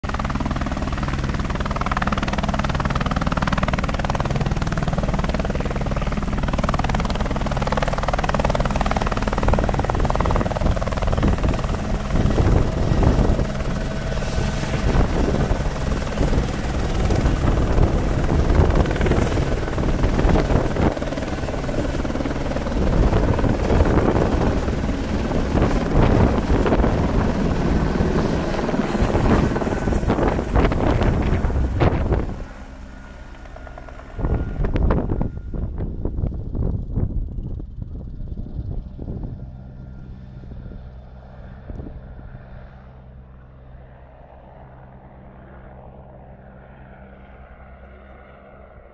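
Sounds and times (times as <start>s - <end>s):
helicopter rotor thudding: 0.1s - 38.2s.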